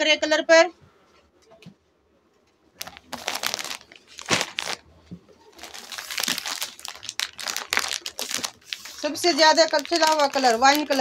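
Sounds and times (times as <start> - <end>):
plastic packaging crinkling: 2.8 - 4.8, 5.5 - 11.0.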